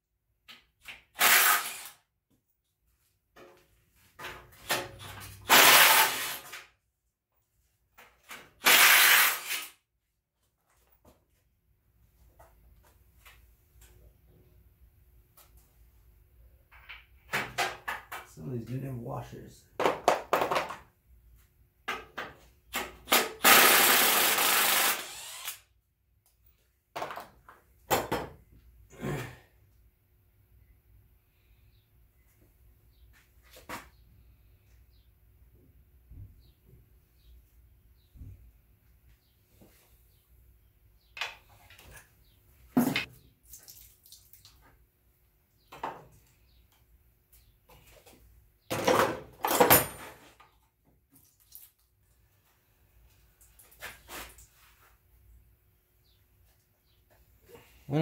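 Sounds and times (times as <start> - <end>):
power tool running: 23.4 - 25.6.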